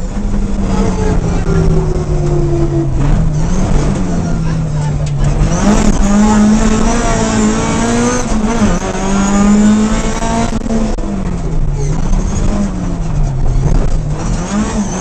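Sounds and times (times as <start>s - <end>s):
rally car engine at high revs: 0.0s - 15.0s.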